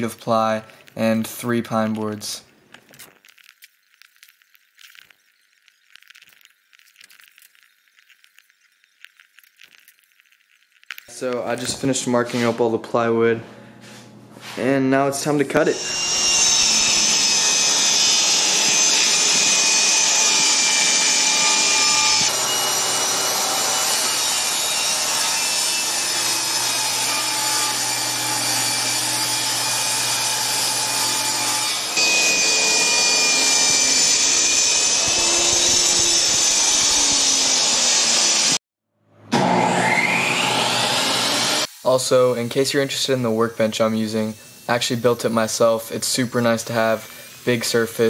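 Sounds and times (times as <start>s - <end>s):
power saw cutting plywood: 15.3s - 38.6s, 39.3s - 41.7s.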